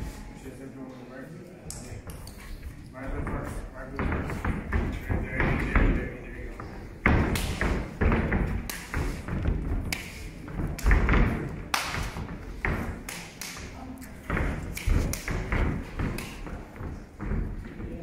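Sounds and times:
boxing gloves hitting pads: 7.0s - 18.0s.

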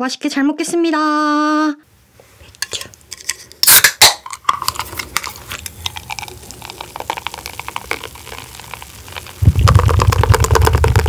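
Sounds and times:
can cracked open with hiss: 3.6s - 11.0s
beer fizzing into glass: 4.7s - 11.0s.

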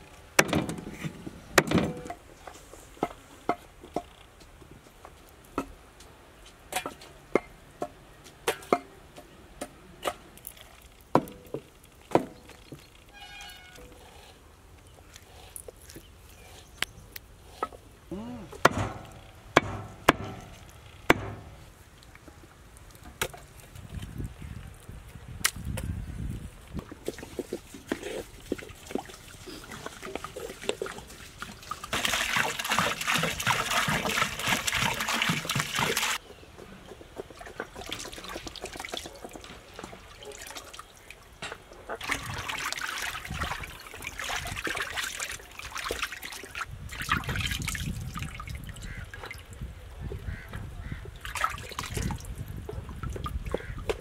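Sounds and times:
water sloshing: 26.8s - 36.2s, 37.2s - 54.0s
water pouring into a basin: 28.8s - 36.2s, 42.0s - 48.8s.

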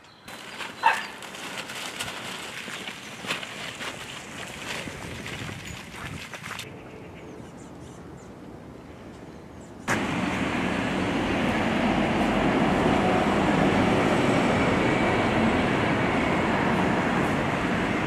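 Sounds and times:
rushing vehicle rumble: 9.8s - 18.0s.

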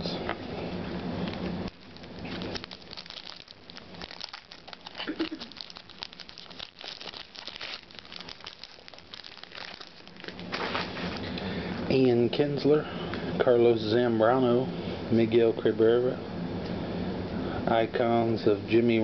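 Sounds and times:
foil wrapper crinkling: 1.3s - 11.3s.

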